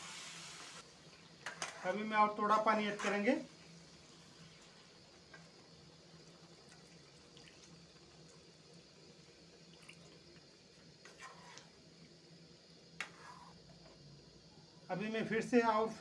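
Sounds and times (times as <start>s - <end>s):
metal spoon stirring pan: 1.4s - 2.0s, 11.0s - 11.8s
water pouring into pan: 6.1s - 10.6s.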